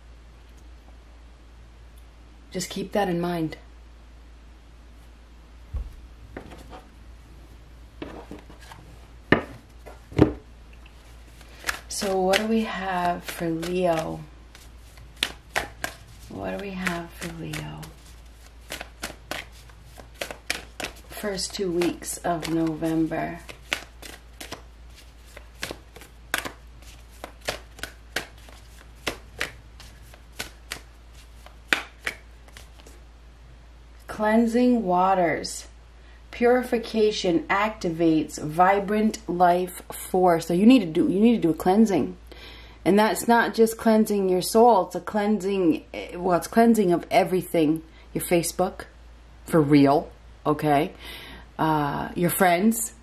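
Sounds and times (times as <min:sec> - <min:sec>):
soft thump: 0:05.7 - 0:06.7
cards tapping and rustling: 0:11.3 - 0:33.0.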